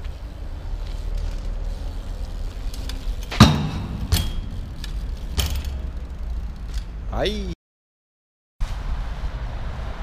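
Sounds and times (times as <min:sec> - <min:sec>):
bike rolling over paving stones: 0:00.0 - 0:07.0
bike knocking on ground: 0:02.8 - 0:06.1
loud metallic clank: 0:03.3 - 0:05.8.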